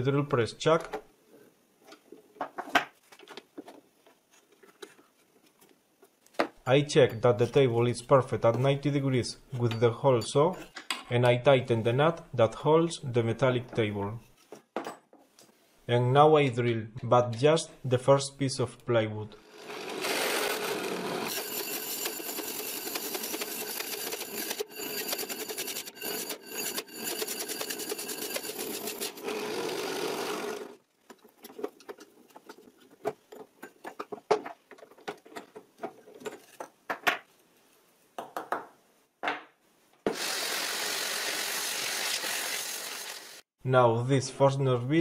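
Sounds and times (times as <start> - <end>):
drill press grinding into plywood: 19.5 - 30.8, 40.1 - 43.2
scattered clicks and knocks: 31.0 - 37.3.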